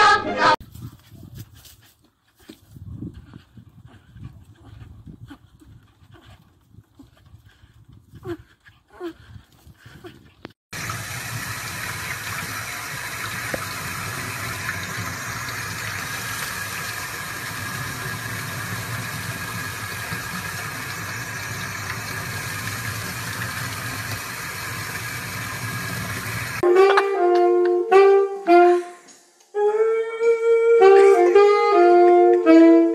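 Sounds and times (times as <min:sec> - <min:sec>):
water running from faucet: 0:10.7 - 0:26.6
saxophone music: 0:26.6 - 0:32.9.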